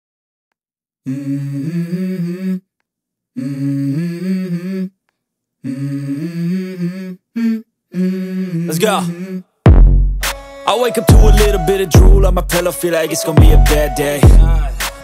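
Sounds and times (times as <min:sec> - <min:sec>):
person humming a melody: 0:01.1 - 0:02.7, 0:05.6 - 0:09.5, 0:10.7 - 0:15.0.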